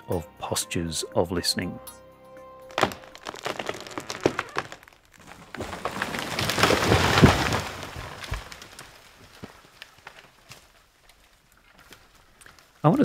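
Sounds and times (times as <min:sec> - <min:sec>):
wood cracking and snapping: 0:02.6 - 0:12.9
crash of branches: 0:02.7 - 0:12.9.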